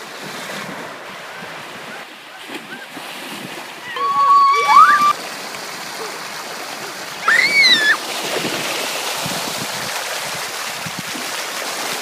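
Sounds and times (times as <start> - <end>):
water rushing and splashing: 0.0 - 12.0
child squealing: 3.9 - 5.2, 7.2 - 8.0.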